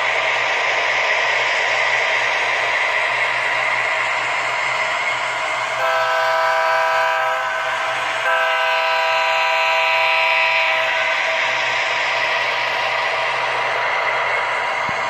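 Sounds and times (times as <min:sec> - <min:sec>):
locomotive engine sound: 0:00.0 - 0:15.0
model locomotive horn blasts: 0:05.8 - 0:11.2.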